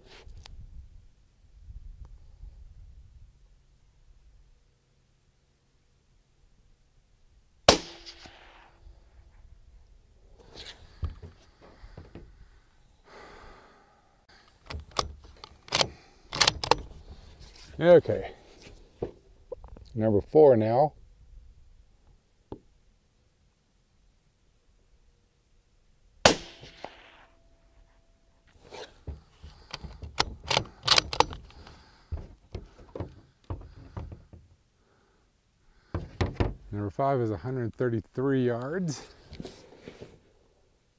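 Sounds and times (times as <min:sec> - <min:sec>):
rifle bolt clicking: 0:14.7 - 0:16.9, 0:29.7 - 0:31.6.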